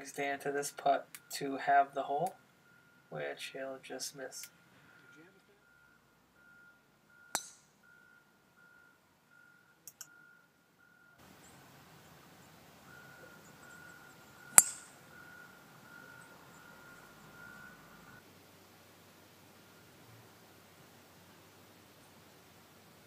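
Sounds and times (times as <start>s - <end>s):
golf club striking ball: 7.3s - 7.7s, 14.4s - 15.1s.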